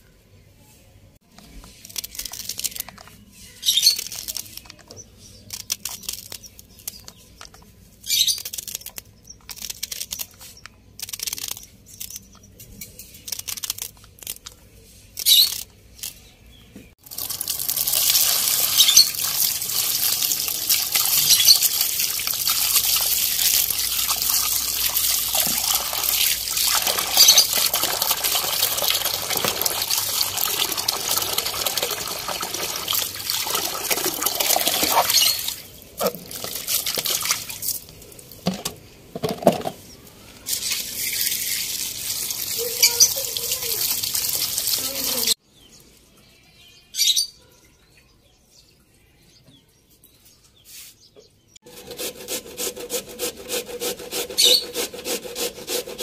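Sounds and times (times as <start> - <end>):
radishes rubbed by hand: 50.6 - 51.0.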